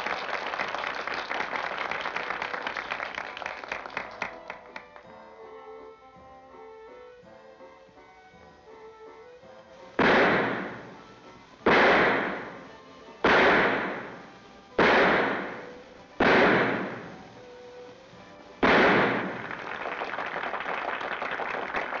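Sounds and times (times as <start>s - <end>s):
audience applauding: 0.0s - 5.1s, 19.2s - 22.0s
revolver shots echoing: 10.0s - 11.1s, 11.7s - 17.2s, 18.6s - 19.5s.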